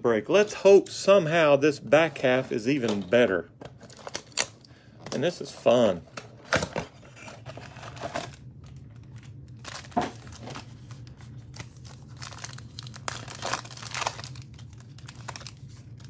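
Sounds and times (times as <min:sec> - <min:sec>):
foil card packs crinkling and tearing: 0:07.2 - 0:16.0.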